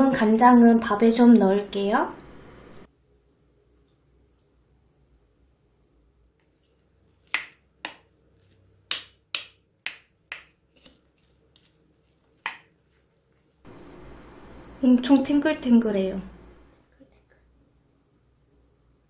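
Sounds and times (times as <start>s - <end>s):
wooden spoon knocking bowl: 8.9s - 10.9s.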